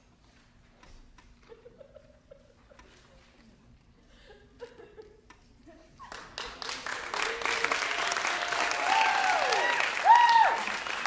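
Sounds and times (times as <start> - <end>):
audience applause: 6.1 - 11.0
crowd cheering: 6.8 - 11.0.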